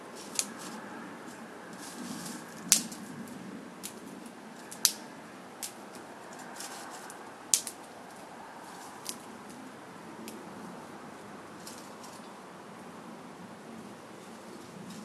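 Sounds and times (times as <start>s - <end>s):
steady background hiss: 0.0s - 15.0s
twigs snapping: 0.2s - 9.6s, 11.6s - 12.3s.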